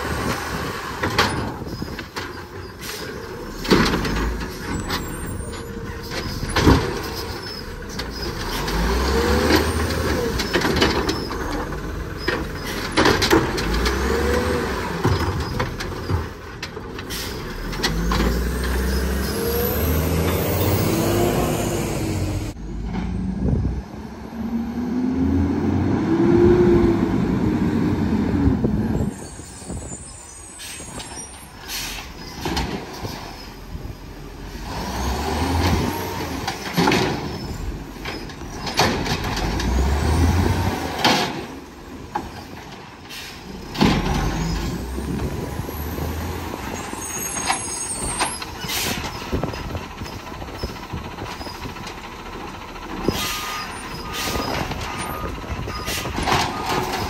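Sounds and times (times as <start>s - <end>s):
truck engine revving: 2.9s - 16.4s, 17.1s - 29.2s, 33.8s - 42.1s
air brakes hissing: 17.1s - 17.6s, 29.3s - 32.4s, 43.0s - 43.6s, 47.4s - 49.3s, 53.0s - 54.7s
carts slamming: 35.5s - 44.7s.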